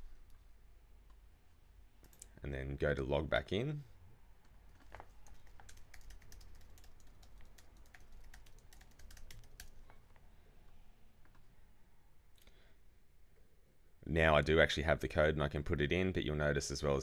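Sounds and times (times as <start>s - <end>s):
computer keyboard typing: 5.2s - 9.8s.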